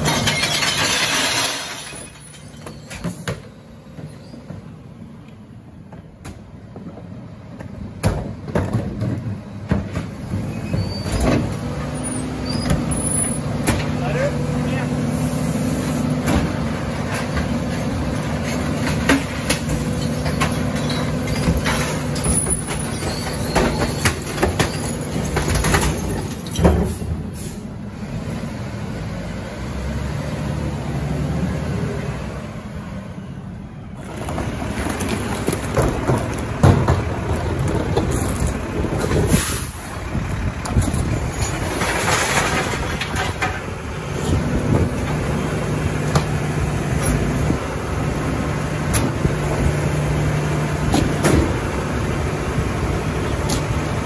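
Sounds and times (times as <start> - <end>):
diesel engine running: 3.4 - 54.0
clanks and knocks: 5.9 - 11.5, 18.4 - 27.0, 34.1 - 39.4.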